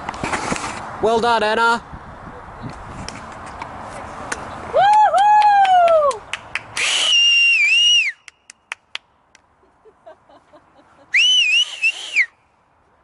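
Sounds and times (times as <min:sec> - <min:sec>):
hands clapping: 0:04.9 - 0:06.8, 0:08.2 - 0:09.5
loud high whistles: 0:06.8 - 0:08.3, 0:11.1 - 0:12.4
person woo calling: 0:06.8 - 0:08.3, 0:11.1 - 0:12.3.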